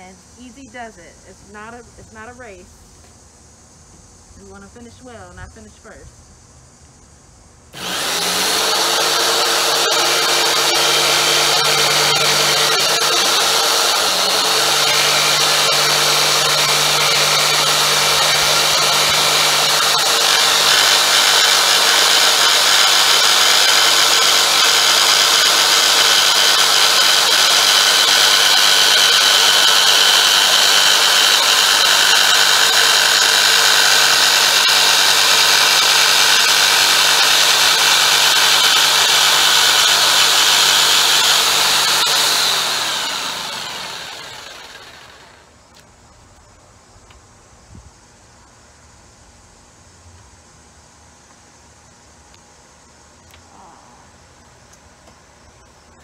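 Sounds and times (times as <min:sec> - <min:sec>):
jigsaw cutting wood: 0:07.8 - 0:45.4.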